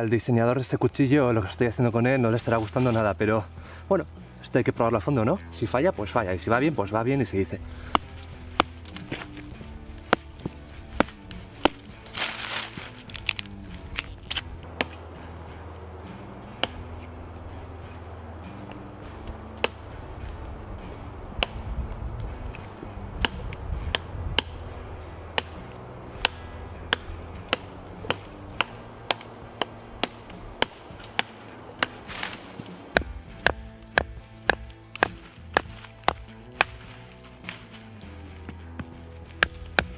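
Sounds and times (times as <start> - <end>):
background music: 0.0 - 39.9
baton striking knife spine: 7.8 - 15.0, 16.6 - 17.2, 22.4 - 37.8.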